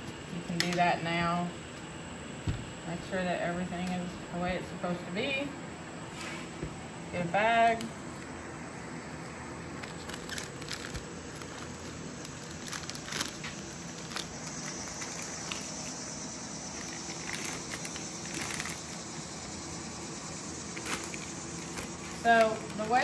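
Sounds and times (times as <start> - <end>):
steady background hiss: 0.0 - 23.0
plastic bag crinkling: 9.7 - 16.0, 16.7 - 19.1, 20.8 - 23.0.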